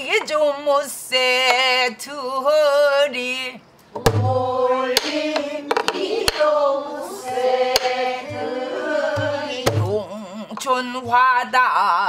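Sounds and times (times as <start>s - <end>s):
folk singing with vibrato: 0.0s - 11.2s
deep drum booms: 4.0s - 4.5s, 9.1s - 10.0s
drum strikes on wooden shell: 4.0s - 6.6s, 7.3s - 10.0s.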